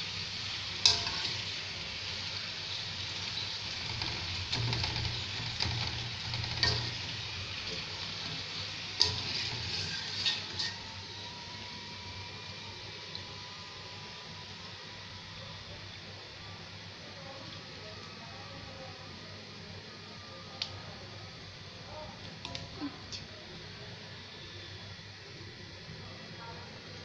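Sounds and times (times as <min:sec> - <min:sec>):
food sizzling in hot oil: 0:00.0 - 0:18.1, 0:20.7 - 0:25.9
skimmer knocking pan: 0:00.8 - 0:01.8, 0:02.8 - 0:11.0.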